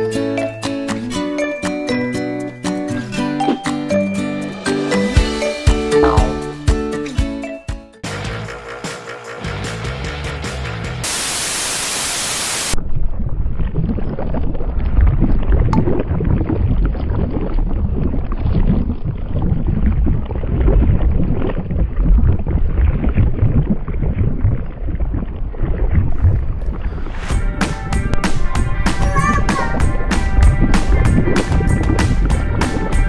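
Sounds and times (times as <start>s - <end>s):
static hiss: 11.0s - 12.8s
low rough rumble: 12.8s - 29.1s.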